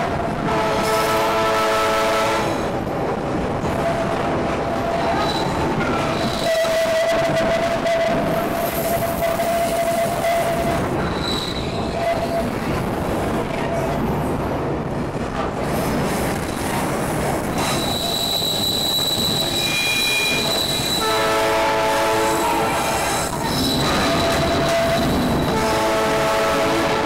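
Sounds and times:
train rolling rumble: 0.0 - 27.0
train whistle: 0.4 - 2.7, 6.3 - 8.4, 9.1 - 10.8, 17.7 - 23.1, 23.8 - 27.0
train wheels squealing: 4.9 - 12.6, 17.5 - 21.2, 22.2 - 25.6.

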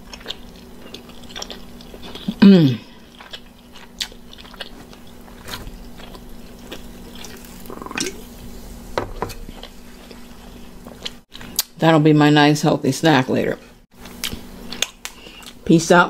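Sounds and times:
chewing and lip smacks: 0.0 - 2.4, 3.0 - 8.2
sipping and swallowing: 7.1 - 8.2.

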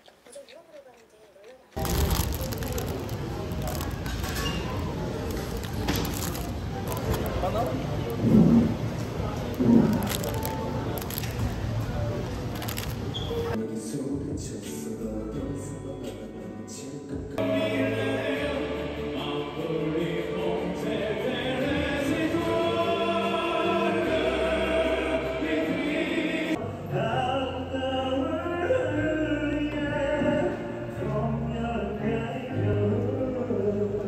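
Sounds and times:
male vocal group singing: 13.6 - 34.0.

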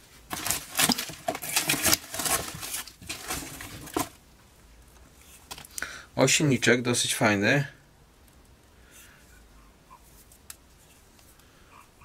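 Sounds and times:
cardboard rustling and scraping: 0.0 - 4.2
metal parts clattering in box: 0.3 - 4.1.

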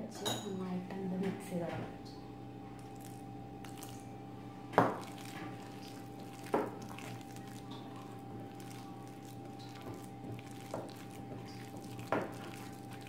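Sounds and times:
steady low hum: 0.0 - 13.0
hand mixing thick batter in bowl: 2.8 - 4.2, 4.8 - 13.0.

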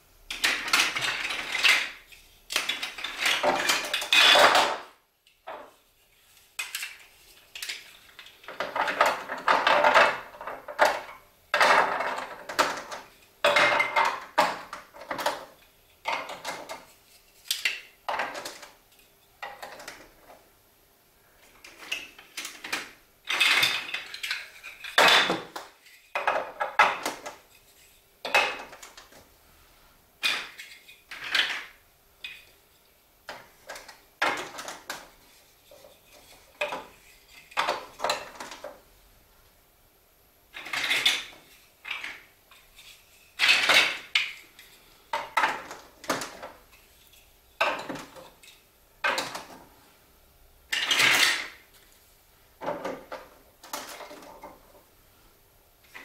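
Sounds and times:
plastic blocks clicking and clattering: 0.3 - 4.9, 6.6 - 18.8, 19.4 - 20.4, 21.4 - 27.4, 28.2 - 29.3, 30.2 - 32.5, 33.2 - 38.8, 40.5 - 46.7, 47.6 - 49.7, 50.7 - 51.8, 52.6 - 54.8.

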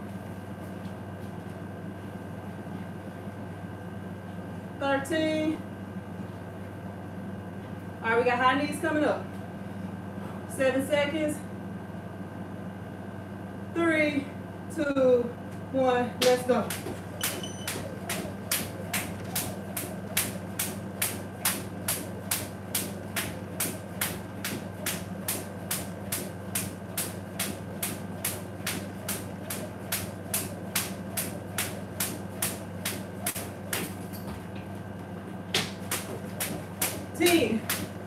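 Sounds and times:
steady low hum: 0.0 - 38.0
jump rope slapping tile floor: 16.2 - 34.4, 35.5 - 38.0.

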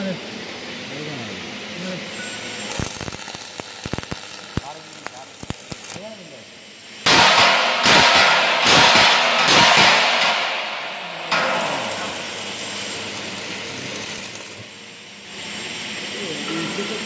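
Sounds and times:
arc welding crackle: 1.7 - 17.0.

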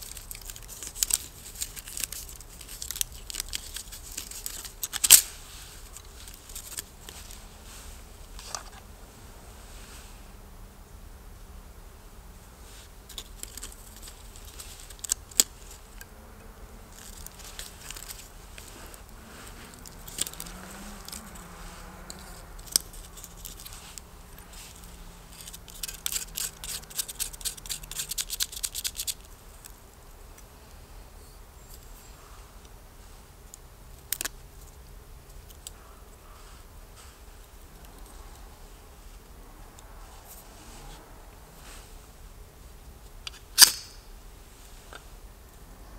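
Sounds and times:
steel striker clicking on flint: 25.4 - 29.2, 43.3 - 44.0.

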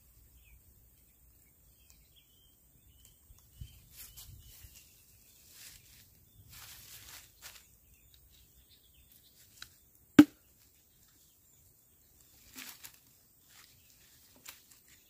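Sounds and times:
machete striking bamboo: 10.2 - 10.4.

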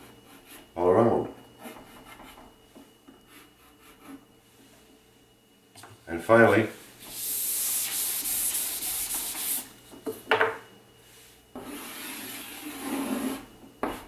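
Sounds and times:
chalk scraping on board: 7.0 - 9.7, 11.6 - 14.0
rubbing chalk off blackboard: 7.0 - 9.7, 11.6 - 14.0.

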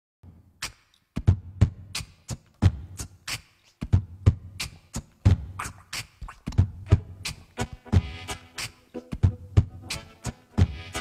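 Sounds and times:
beatboxing into microphone: 0.3 - 11.0.

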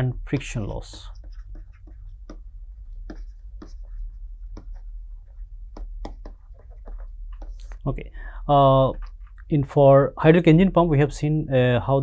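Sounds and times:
steady low hum: 0.0 - 12.0
pen tapping on tablet: 0.3 - 4.8, 5.7 - 7.7.

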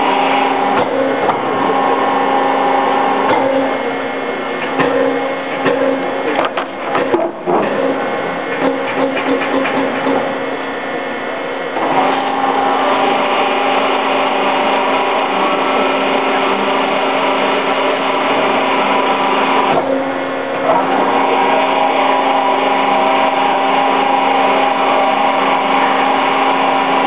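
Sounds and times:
machine drive humming and whining: 0.0 - 27.0.

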